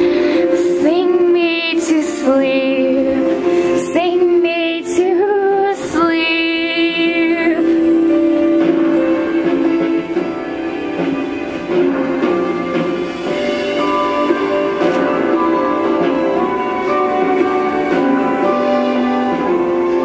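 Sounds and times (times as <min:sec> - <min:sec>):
woman singing: 0:00.0 - 0:09.0
musical accompaniment: 0:00.0 - 0:20.0.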